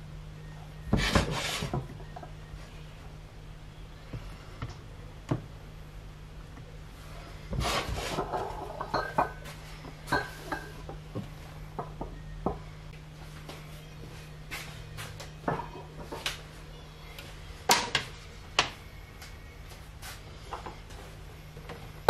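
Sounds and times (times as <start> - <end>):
low hum: 0.0 - 22.0
bottles and utensils clinking: 8.1 - 9.5, 10.1 - 10.9.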